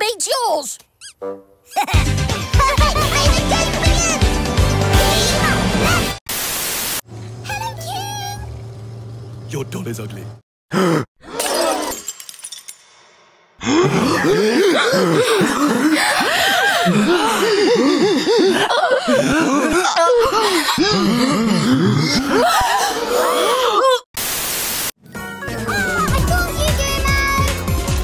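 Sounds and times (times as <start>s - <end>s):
loud static hiss: 6.3s - 7.0s, 24.2s - 24.9s.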